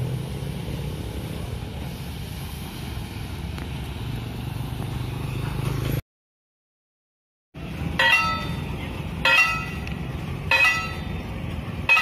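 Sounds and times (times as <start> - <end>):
motorcycle engine passing by: 3.8 - 6.0.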